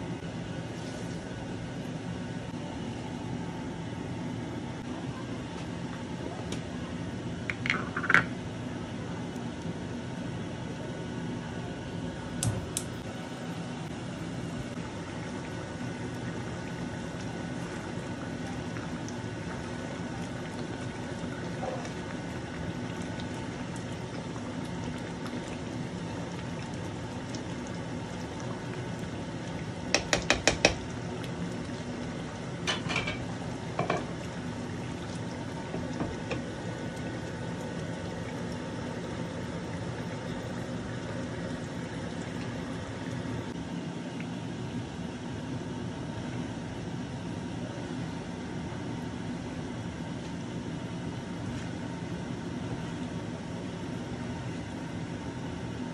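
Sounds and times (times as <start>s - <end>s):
curry simmering in a pan: 13.4s - 43.6s.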